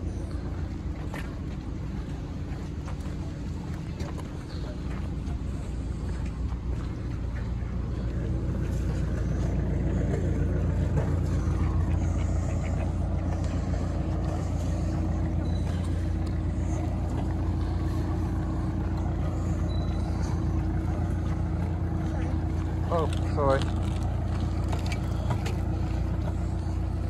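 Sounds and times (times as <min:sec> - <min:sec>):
boat engine humming: 0:00.0 - 0:27.0
faint steady tone: 0:04.3 - 0:22.9.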